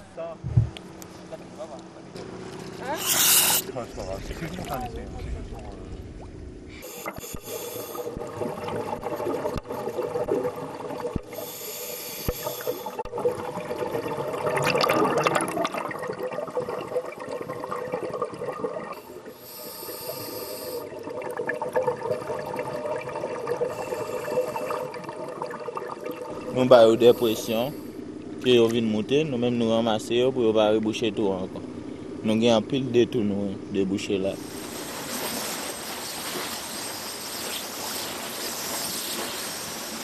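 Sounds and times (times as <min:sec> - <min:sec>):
faint steady hum: 0:00.0 - 0:40.0
regulator breathing hiss: 0:03.0 - 0:03.6, 0:06.7 - 0:08.2, 0:11.3 - 0:13.0, 0:19.3 - 0:20.9, 0:23.7 - 0:24.8, 0:26.9 - 0:28.0
rush of bubbles: 0:03.0 - 0:11.5, 0:12.2 - 0:19.4, 0:20.7 - 0:27.2, 0:34.4 - 0:40.0.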